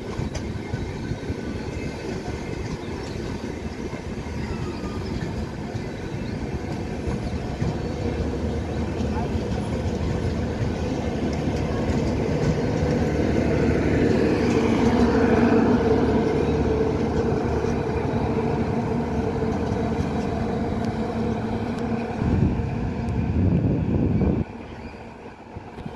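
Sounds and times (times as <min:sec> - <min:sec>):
train wheels rumbling on rails: 0:00.0 - 0:25.9.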